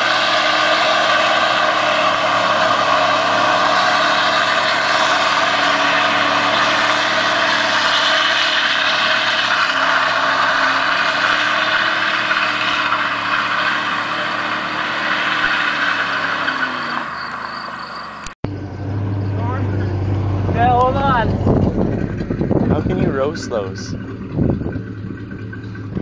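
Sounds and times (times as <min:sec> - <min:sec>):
tyres spinning: 0:00.0 - 0:18.3
truck engine at high revs: 0:00.0 - 0:26.0.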